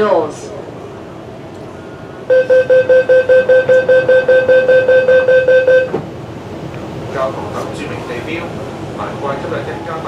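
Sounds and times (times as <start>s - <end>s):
rapid electronic door warning beeps: 2.3s - 6.0s.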